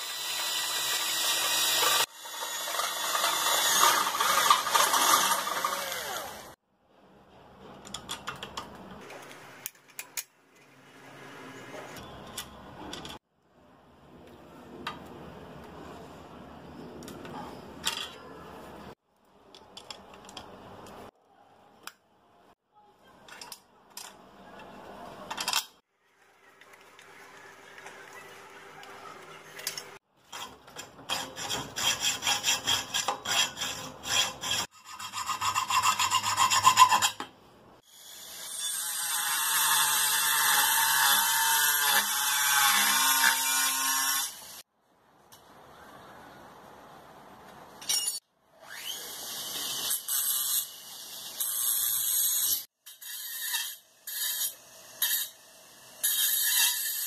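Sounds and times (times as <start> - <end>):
rotary tool cutting metal: 0.0 - 6.6, 29.1 - 37.2, 37.9 - 44.6, 47.9 - 57.0
tools scraping and clicking: 7.6 - 10.8, 23.2 - 25.8, 28.8 - 37.3, 47.8 - 48.3
file rasping on metal: 30.4 - 37.2.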